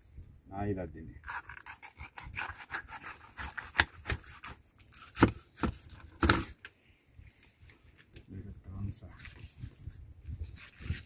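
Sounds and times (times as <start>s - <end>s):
knife scraping through fish: 1.2s - 5.2s.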